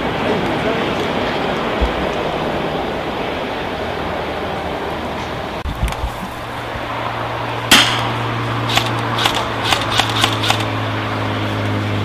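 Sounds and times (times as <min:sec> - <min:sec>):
airsoft gun shots: 0:07.7 - 0:08.1, 0:08.7 - 0:10.7.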